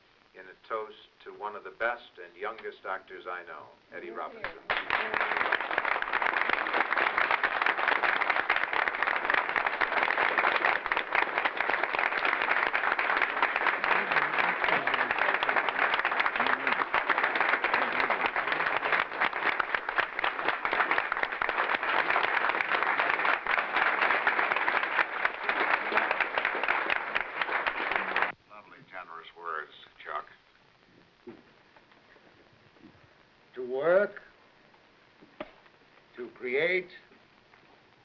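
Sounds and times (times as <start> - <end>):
audience applause: 4.4 - 28.4.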